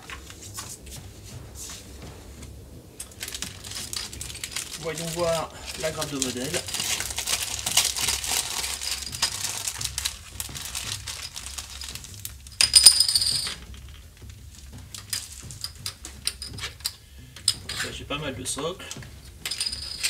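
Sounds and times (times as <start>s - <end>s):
plastic bag crinkling: 3.0s - 13.6s.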